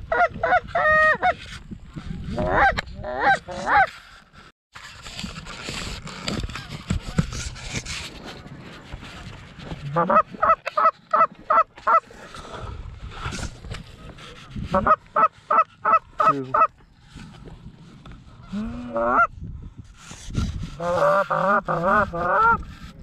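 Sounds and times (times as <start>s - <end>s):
goose honking: 9.9s - 12.0s.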